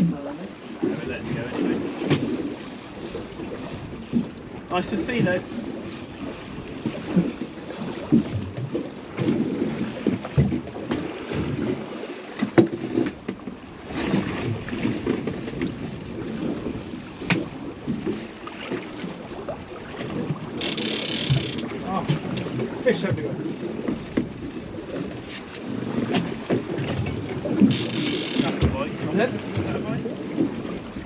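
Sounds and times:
water noise: 0.0 - 31.0
wind: 0.0 - 31.0
sharp knocks on boat: 12.4 - 13.5, 17.2 - 18.9, 26.0 - 28.9.

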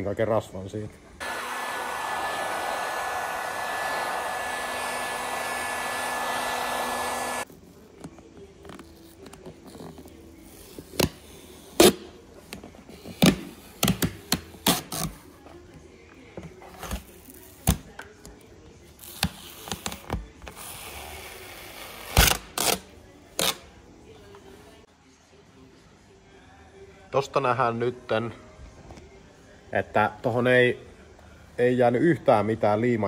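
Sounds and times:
heat gun blowing with fan whine: 1.2 - 7.5.

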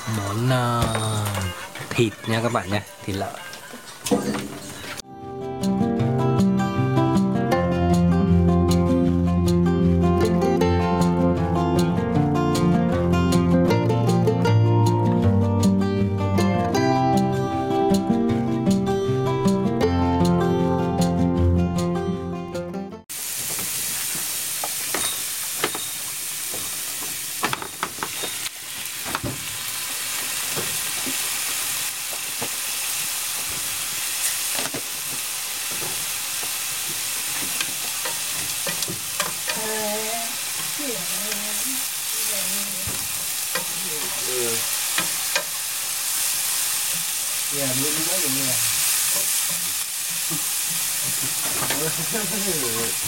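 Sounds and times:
food sizzling in a frying pan: 0.0 - 5.0, 23.1 - 53.0.

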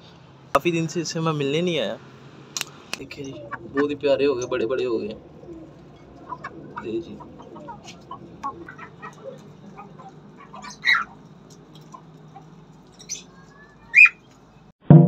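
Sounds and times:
faint background bird chirps: 3.0 - 14.7
cockatiel chirping calls: 3.1 - 14.3.

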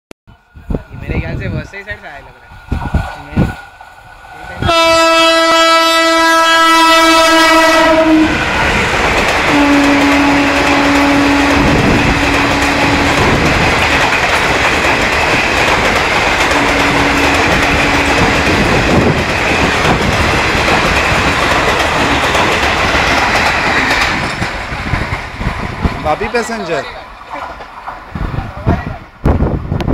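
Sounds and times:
train coaches clattering past: 0.3 - 29.9
locomotive horn blast: 4.6 - 8.4, 9.5 - 13.3, 16.5 - 18.4.

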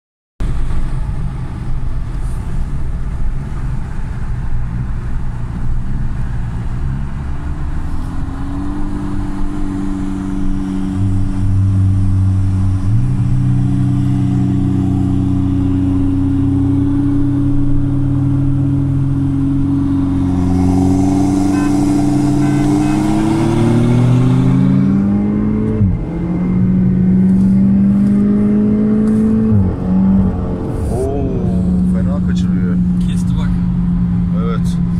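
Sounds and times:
car engine revving from inside cabin: 15.3 - 32.2.

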